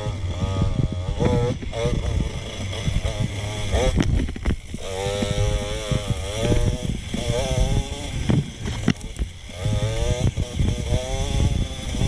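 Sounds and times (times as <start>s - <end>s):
dirt bike engine revving: 0.0s - 12.0s
bike knocking over ground: 8.2s - 9.5s.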